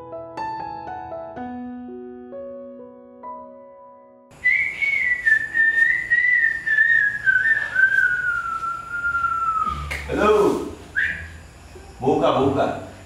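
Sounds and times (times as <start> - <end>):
long whistle sliding down in pitch: 4.4 - 10.0, 11.0 - 11.3.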